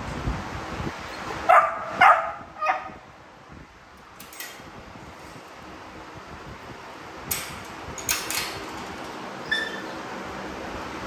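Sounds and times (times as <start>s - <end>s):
dog barking: 1.5s - 3.0s.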